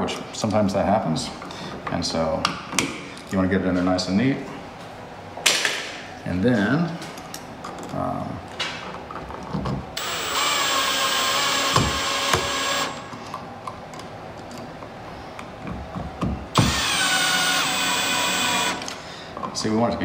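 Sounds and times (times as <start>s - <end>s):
cordless drill motor running: 10.0s - 13.1s, 16.6s - 19.0s.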